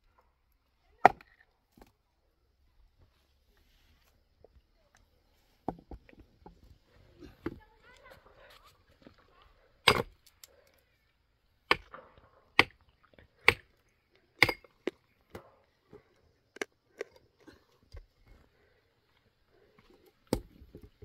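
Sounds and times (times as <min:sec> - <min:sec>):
hand tools breaking rock: 0:09.8 - 0:10.5, 0:11.7 - 0:13.8, 0:14.4 - 0:15.6.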